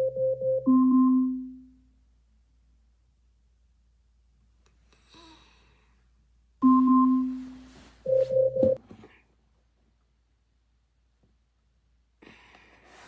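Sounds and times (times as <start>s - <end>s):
timer alarm chime: 0.0s - 1.5s, 6.6s - 7.4s, 8.1s - 8.8s.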